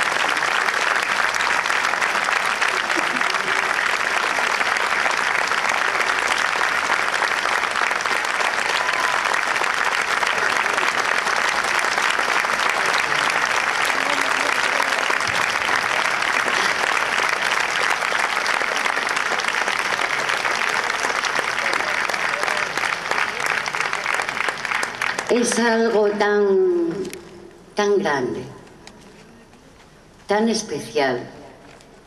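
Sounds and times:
large audience applauding: 0:00.0 - 0:25.6.

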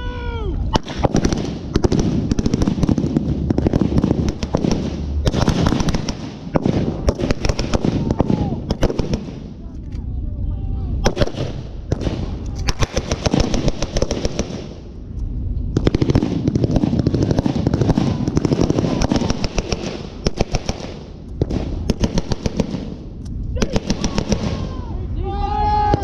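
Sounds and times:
machine gun firing bursts: 0:00.7 - 0:09.5, 0:11.0 - 0:14.8, 0:15.7 - 0:23.0, 0:23.6 - 0:24.6.

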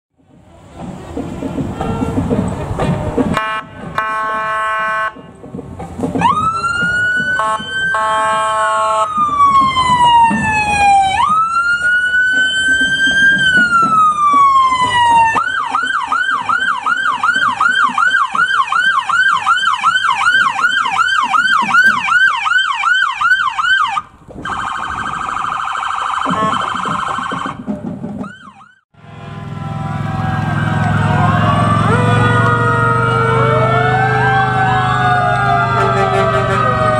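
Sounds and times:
fire truck sirens rising: 0:00.3 - 0:36.9
police sirens wailing and yelping: 0:06.1 - 0:36.9
deep engine rumble: 0:29.0 - 0:36.9.

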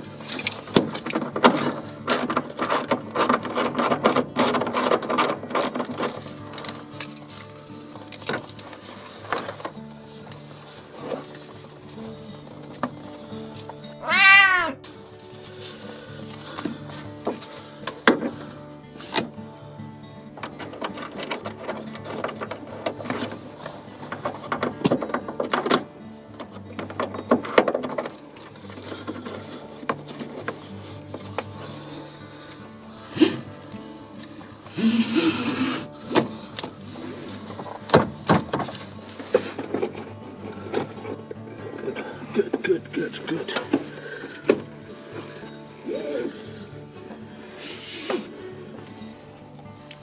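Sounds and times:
ratchet wrench clicking: 0:01.5 - 0:06.2.

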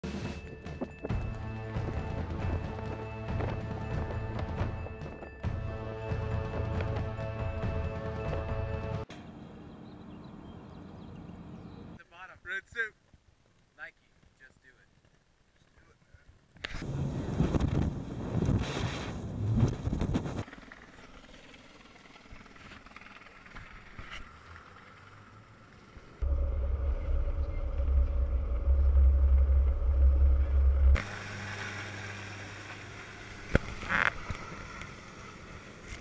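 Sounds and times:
low engine hum: 0:00.2 - 0:12.0, 0:19.2 - 0:36.0
boat running through spray: 0:30.9 - 0:36.0.

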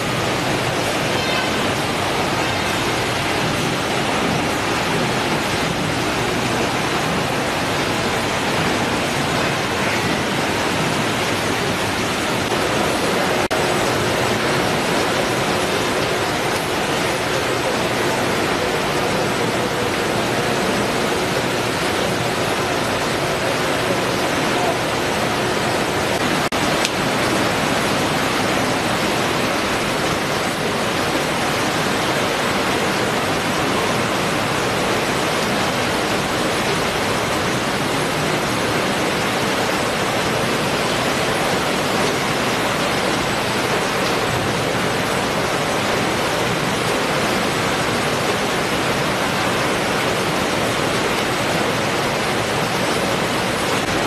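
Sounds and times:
conveyor machinery rushing: 0:00.0 - 0:54.0.

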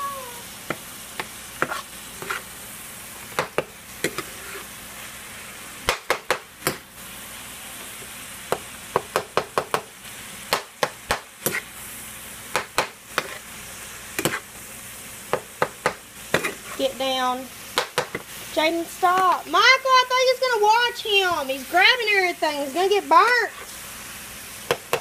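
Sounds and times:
meat sizzling in a frying pan: 0:00.0 - 0:25.0
utensil scraping a pan: 0:01.6 - 0:02.6, 0:04.0 - 0:04.8, 0:11.4 - 0:11.7, 0:13.1 - 0:13.5, 0:14.2 - 0:14.5, 0:16.3 - 0:17.0.

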